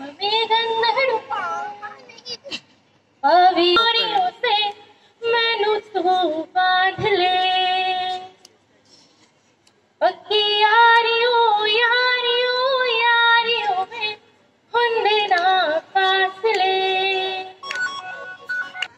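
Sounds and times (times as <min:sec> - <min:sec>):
woman singing into a microphone: 0:00.0 - 0:01.4, 0:03.2 - 0:08.4, 0:10.0 - 0:17.6.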